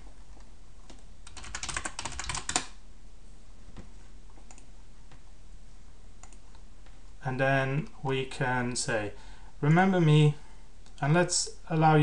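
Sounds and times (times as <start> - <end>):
typing on computer keyboard: 0.9 - 2.8.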